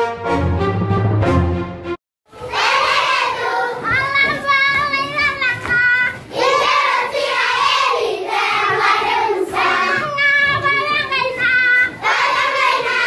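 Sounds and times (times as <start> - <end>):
children singing together: 2.3 - 13.0.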